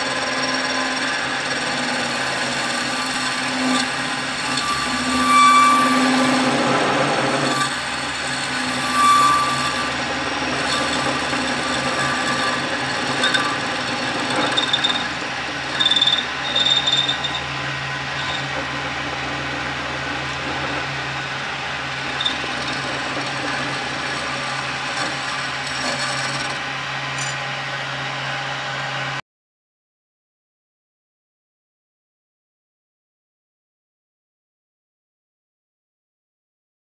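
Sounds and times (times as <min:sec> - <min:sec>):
lathe cutting metal: 0:00.0 - 0:29.0
lathe motor hum: 0:00.0 - 0:29.1.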